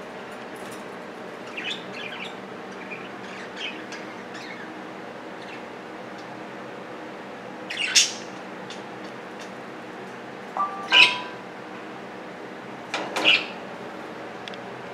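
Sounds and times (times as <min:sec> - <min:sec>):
budgerigars chirping: 0:01.5 - 0:04.7, 0:10.6 - 0:11.3.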